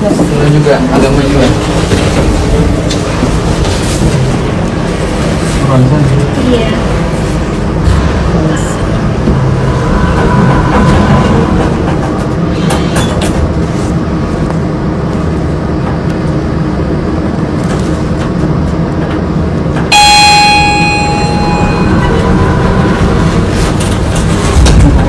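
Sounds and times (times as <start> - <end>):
lift rumbling: 0.0 - 25.0
lift arrival chime: 19.9 - 23.7.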